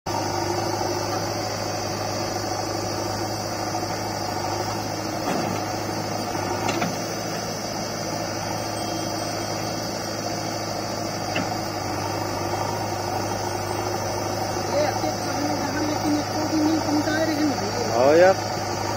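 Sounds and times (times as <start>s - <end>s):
diesel engine idling: 0.1s - 18.9s.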